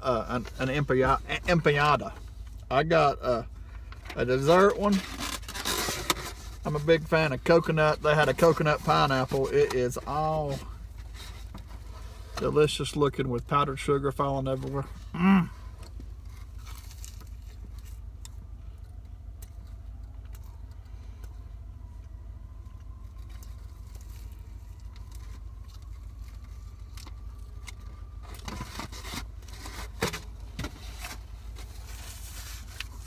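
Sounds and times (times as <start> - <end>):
rustles and clicks: 15.7 - 33.0.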